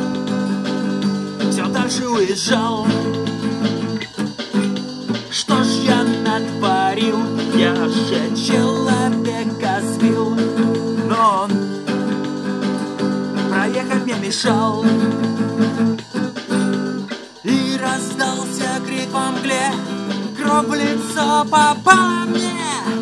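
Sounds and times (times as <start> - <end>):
strummed acoustic guitar: 0.0 - 23.0
man singing: 1.4 - 3.4, 5.3 - 11.7, 13.5 - 15.4, 17.4 - 23.0.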